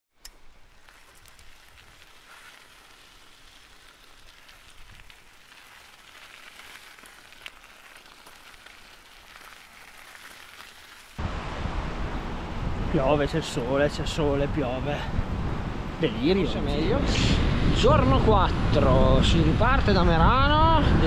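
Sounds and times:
rain falling: 0:00.4 - 0:11.3
wind buffeting microphone: 0:11.2 - 0:21.0.

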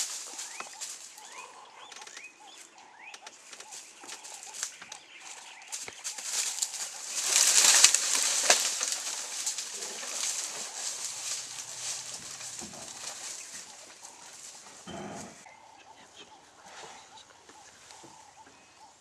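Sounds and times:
dry leaves rustling and crackling: 0:00.0 - 0:01.4, 0:03.6 - 0:15.5.

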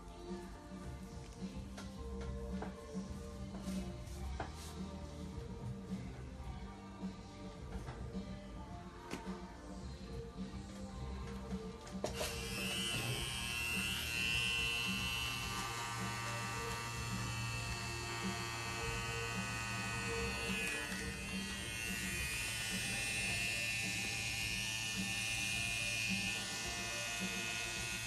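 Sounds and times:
music playing: 0:00.0 - 0:28.0
tattoo machine buzzing: 0:12.1 - 0:28.0.

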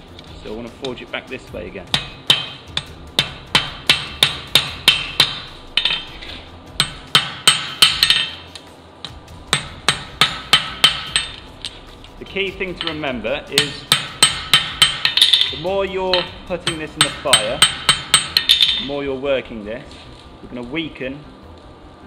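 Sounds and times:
hammer striking steel on anvil: 0:01.8 - 0:11.8, 0:12.6 - 0:19.0.

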